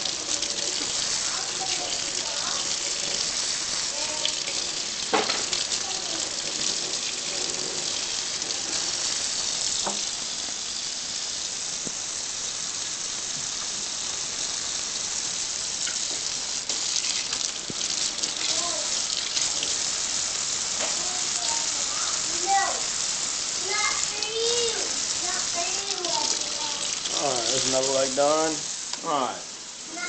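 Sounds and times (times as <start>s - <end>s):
tap running into metal sink: 4.4s - 5.7s, 9.8s - 10.1s.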